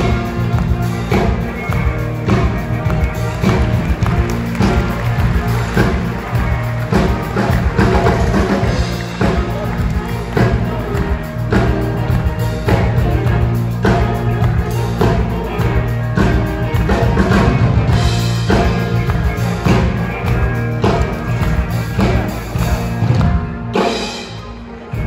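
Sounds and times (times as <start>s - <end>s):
driving drum beat: 0.0s - 25.0s
sustained bass notes: 0.0s - 25.0s.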